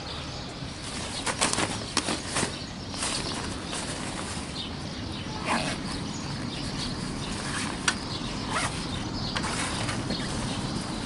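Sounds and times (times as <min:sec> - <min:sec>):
nylon fabric rustling: 0:06.6 - 0:11.0.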